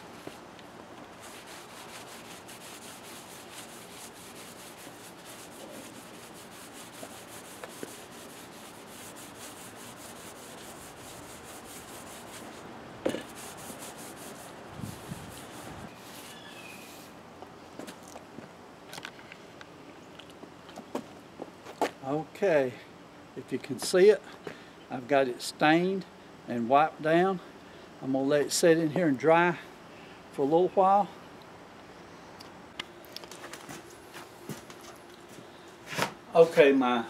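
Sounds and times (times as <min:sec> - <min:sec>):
paper towel rubbing wood: 0:01.2 - 0:12.6, 0:13.2 - 0:16.4.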